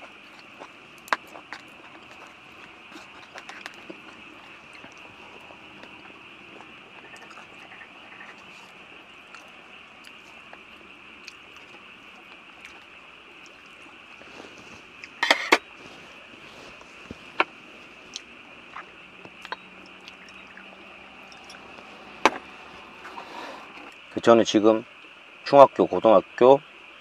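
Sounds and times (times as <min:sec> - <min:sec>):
crunchy chewing: 0:00.0 - 0:24.1
mouth clicks: 0:18.1 - 0:23.2
liquid pouring into glass: 0:19.8 - 0:21.8.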